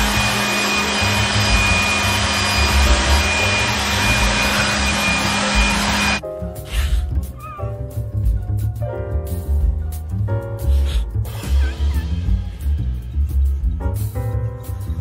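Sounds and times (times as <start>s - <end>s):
vacuum cleaner running: 0.0s - 6.2s, 11.3s - 12.3s.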